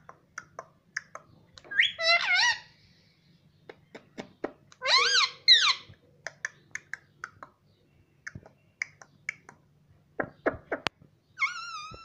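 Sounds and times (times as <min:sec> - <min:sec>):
parakeet high-pitched calls: 0:01.7 - 0:02.7, 0:04.8 - 0:05.9, 0:11.4 - 0:12.0.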